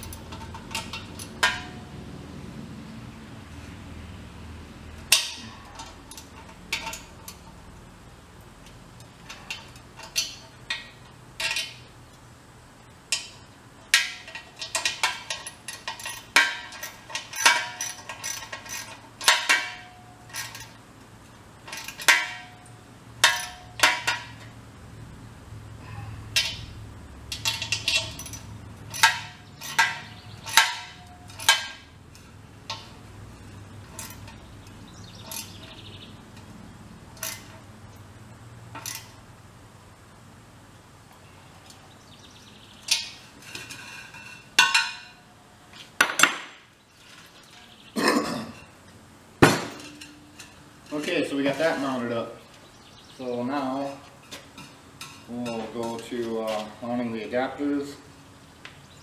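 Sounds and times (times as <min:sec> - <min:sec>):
metallic clinks on steel tank: 0:26.3 - 0:33.0.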